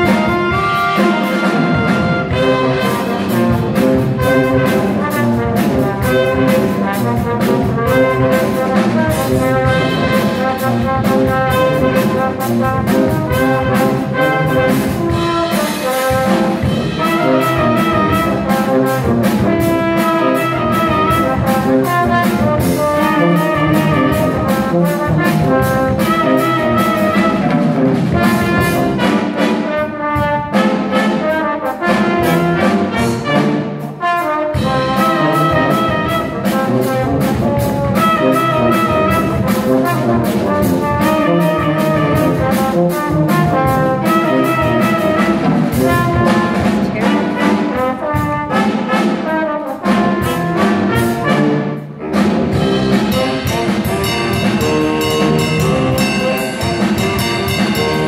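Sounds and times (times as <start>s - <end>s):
horn ensemble playing funk: 0.0s - 58.0s.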